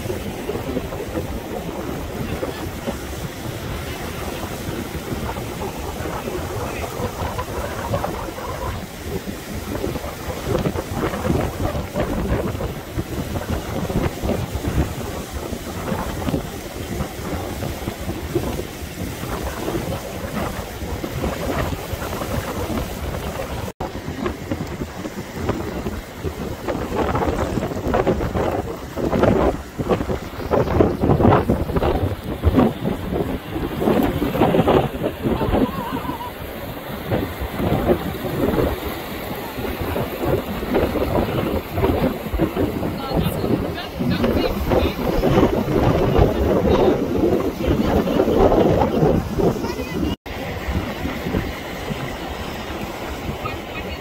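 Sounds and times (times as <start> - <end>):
surf breaking on rocks: 0.0 - 54.0
wind buffeting microphone: 0.0 - 54.0.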